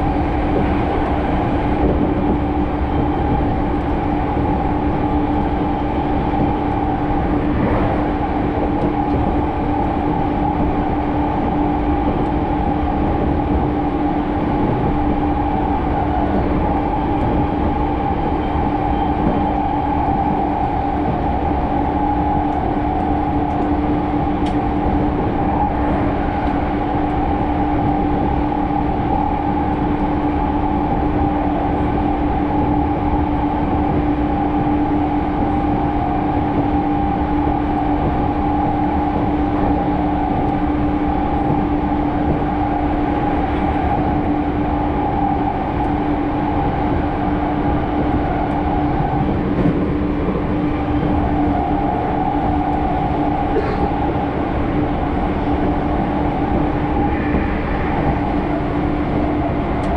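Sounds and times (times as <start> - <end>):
train rumbling: 0.0 - 59.9
low hum: 5.0 - 12.6, 35.5 - 59.9
higher hum: 5.6 - 11.0, 48.6 - 59.9.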